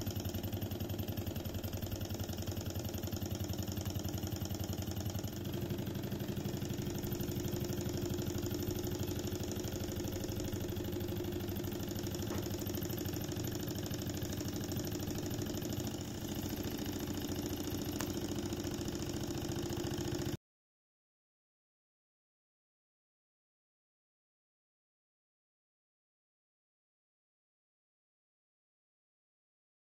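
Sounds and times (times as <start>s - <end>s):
model engine clattering: 0.0s - 20.4s.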